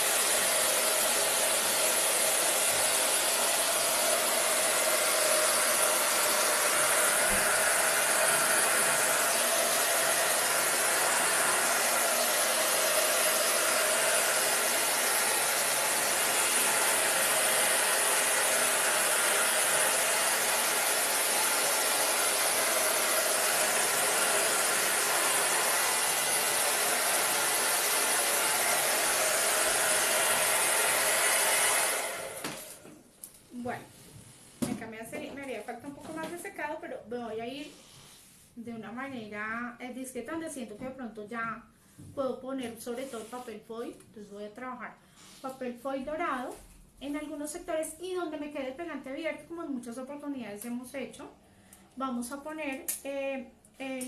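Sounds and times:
hair dryer running: 0.0 - 33.0.

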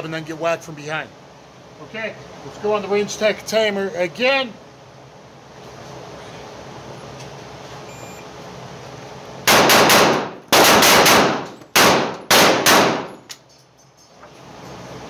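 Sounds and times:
shot timer beep: 7.9 - 8.2
pistol shots: 9.5 - 13.3.

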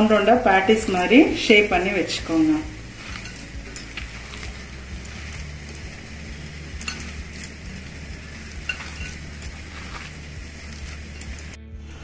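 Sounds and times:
wet mixture squishing: 2.2 - 11.6.

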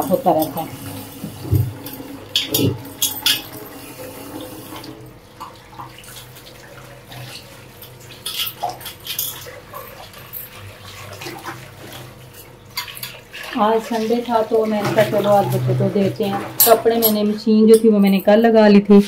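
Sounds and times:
utensils clinking: 0.0 - 5.6, 7.2 - 11.2, 12.4 - 18.6
dishes being washed: 0.0 - 19.0
tap running into sink: 0.4 - 6.4.

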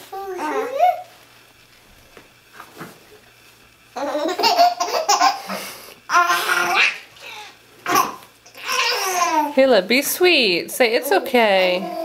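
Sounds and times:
baby laughing: 4.0 - 9.5.

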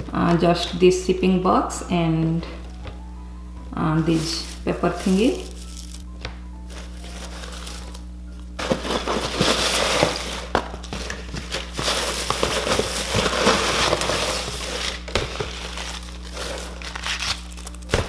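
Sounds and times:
paper filler rustling: 4.0 - 6.1, 6.7 - 8.0, 8.6 - 18.0.

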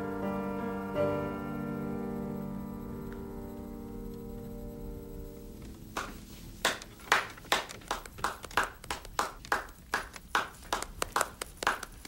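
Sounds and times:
hands clapping: 5.9 - 12.0.

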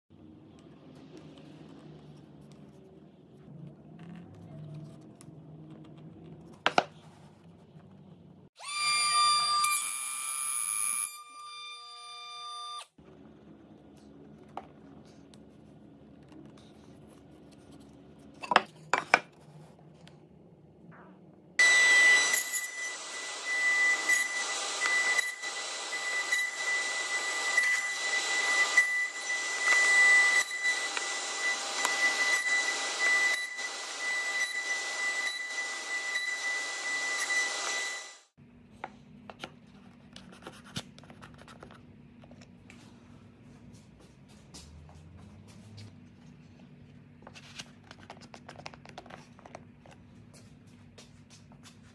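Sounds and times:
table saw cutting wood: 8.6 - 12.9, 21.6 - 38.4.

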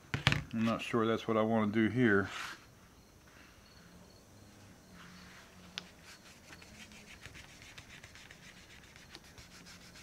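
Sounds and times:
cloth rag rubbing on metal: 4.9 - 10.0.

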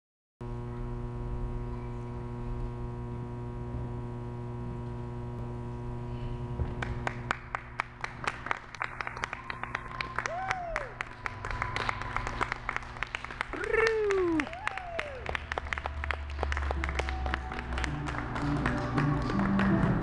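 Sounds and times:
electrical hum: 0.4 - 20.0
hand clapping: 6.8 - 20.0.

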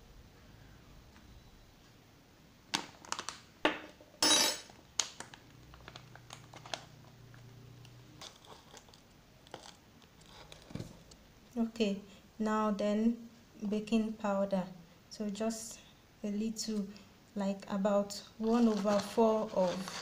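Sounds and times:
plastic pouch crinkling: 5.0 - 7.2, 8.2 - 10.7.

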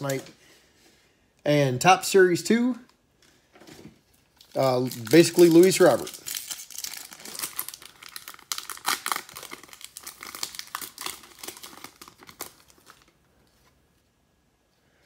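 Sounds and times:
foil wrapper tearing and crinkling: 4.4 - 13.2.

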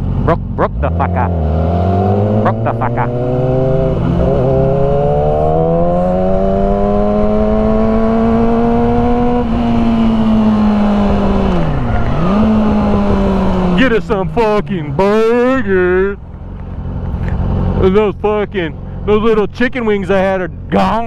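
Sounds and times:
motorcycle engine revving: 0.0 - 18.3.

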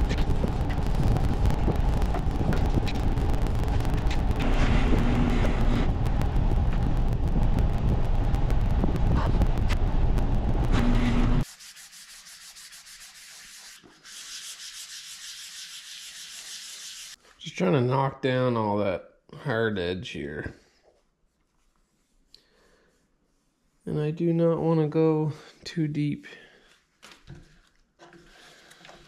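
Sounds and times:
loud low rumble with clicks: 0.0 - 11.4
hand sanding with sandpaper: 11.4 - 17.3, 20.6 - 24.4.

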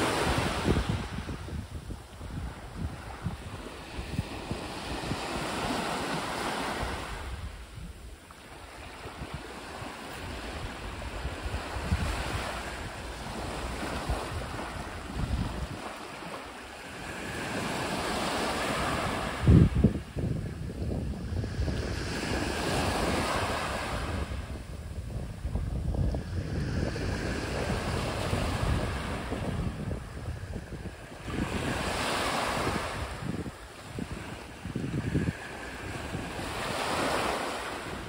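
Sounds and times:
waves washing on pebble beach: 0.0 - 7.6
wind buffeting microphone: 0.0 - 38.0.

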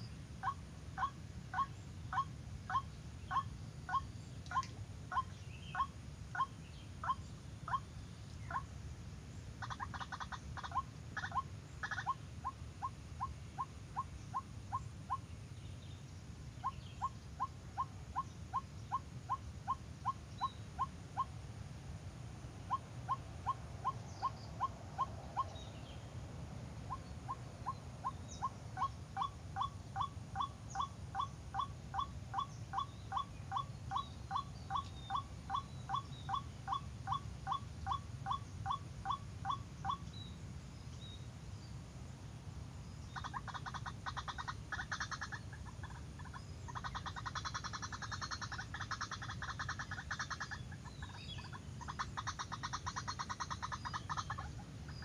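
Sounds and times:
harsh bird chattering: 9.6 - 13.3, 27.3 - 40.1, 43.2 - 55.0.

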